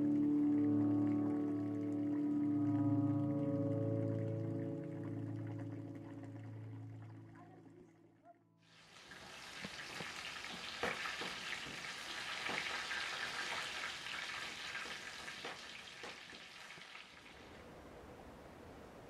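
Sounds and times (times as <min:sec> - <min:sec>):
food sizzling in a pan: 0:08.7 - 0:17.3
utensil knocking pan: 0:09.7 - 0:12.8.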